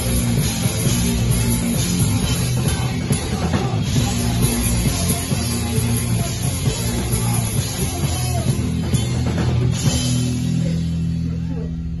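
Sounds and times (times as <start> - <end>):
pounding drum kit: 0.0 - 12.0
punk band playing loud: 0.0 - 12.0.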